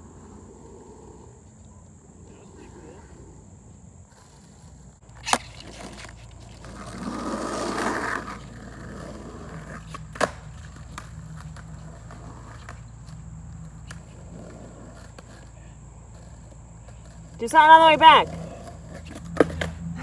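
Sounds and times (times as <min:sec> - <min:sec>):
skateboard wheels rolling on asphalt: 0:00.0 - 0:20.0
skateboard clacks: 0:04.2 - 0:20.0.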